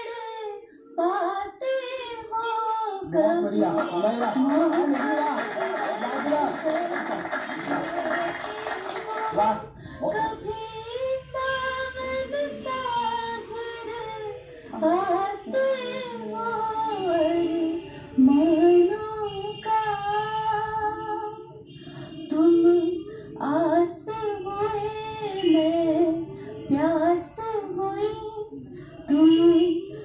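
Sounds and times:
woman singing: 0:00.0 - 0:03.6, 0:10.0 - 0:21.6, 0:22.3 - 0:30.0.

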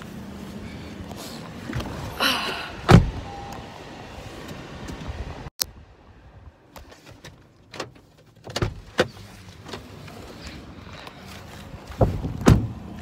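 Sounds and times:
car door shutting: 0:02.8 - 0:03.5, 0:12.0 - 0:12.9.

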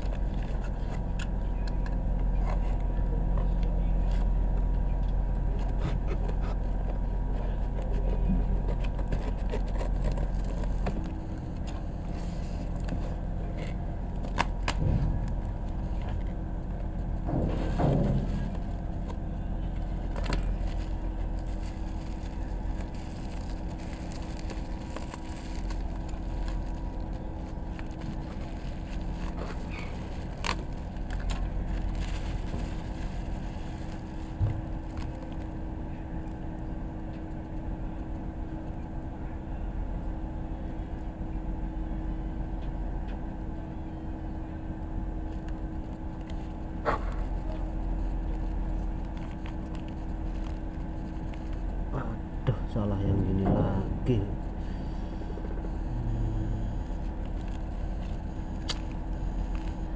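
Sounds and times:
low mechanical hum: 0:00.0 - 0:59.9
hands handling cardboard parcel: 0:05.6 - 0:16.2, 0:19.8 - 0:35.5, 0:45.8 - 0:51.9, 0:57.0 - 0:59.9
bubble wrap rustle: 0:19.8 - 0:36.4, 0:45.3 - 0:51.9, 0:56.8 - 0:59.9.

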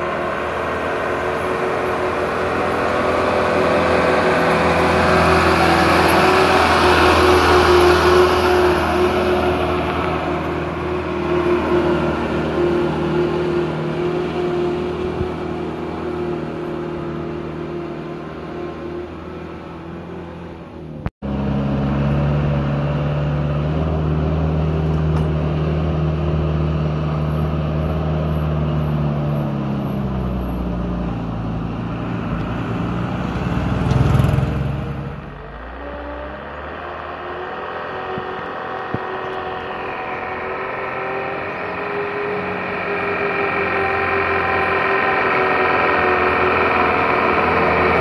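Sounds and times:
truck engine labouring uphill: 0:00.0 - 0:48.0.

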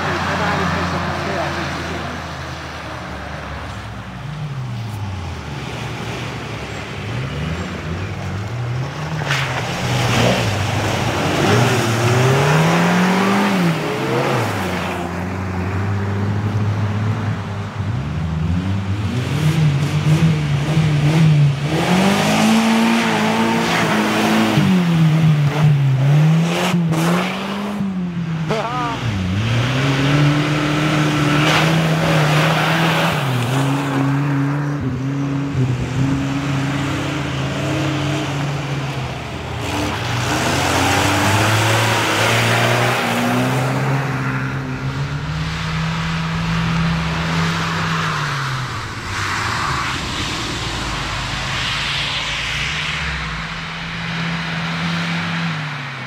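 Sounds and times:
off-road engines revving: 0:00.0 - 0:56.0
mud and water splashing: 0:05.0 - 0:15.2.

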